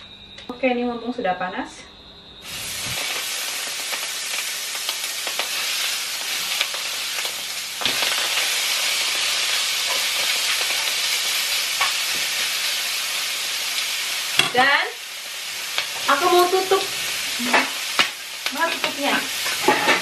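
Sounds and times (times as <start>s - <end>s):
chicken sizzling in a frying pan: 2.4s - 20.0s.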